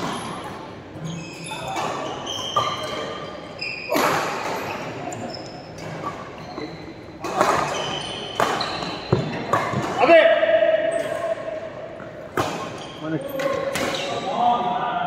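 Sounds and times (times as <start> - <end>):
shoes squeaking on court floor: 0.0 - 10.1, 10.8 - 14.4
racket hitting shuttlecock: 7.2 - 10.1.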